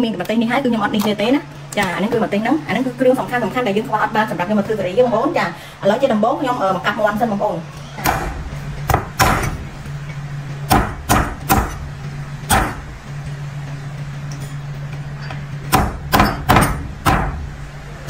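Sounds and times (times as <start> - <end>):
steady low hum: 0.0 - 18.0
cleaver chopping on wooden block: 8.0 - 9.6, 10.7 - 11.8, 12.5 - 12.8, 15.7 - 17.4.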